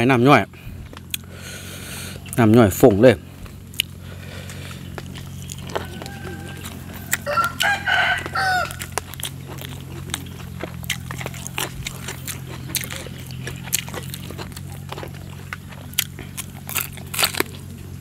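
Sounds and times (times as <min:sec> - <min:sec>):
wet chewing clicks: 0:00.8 - 0:01.3, 0:03.4 - 0:18.0
rooster crowing: 0:05.3 - 0:09.1.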